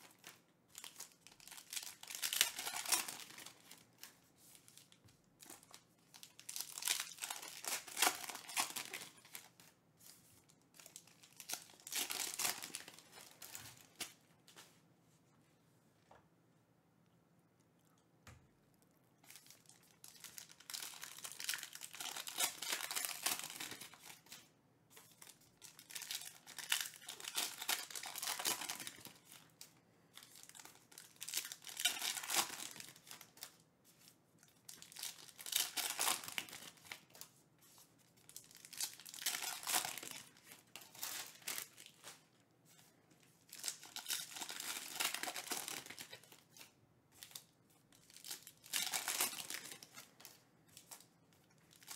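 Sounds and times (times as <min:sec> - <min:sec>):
foil packs tearing and crinkling: 0:00.0 - 0:03.8, 0:06.1 - 0:09.5, 0:20.0 - 0:24.4, 0:25.2 - 0:29.2, 0:30.4 - 0:33.5, 0:34.8 - 0:37.0, 0:38.4 - 0:42.1, 0:43.5 - 0:47.4, 0:48.1 - 0:50.1.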